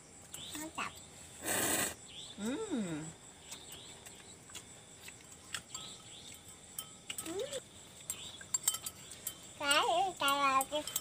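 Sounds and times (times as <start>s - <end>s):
crickets chirping: 0.0s - 11.0s
loud breathy hiss: 1.4s - 2.0s.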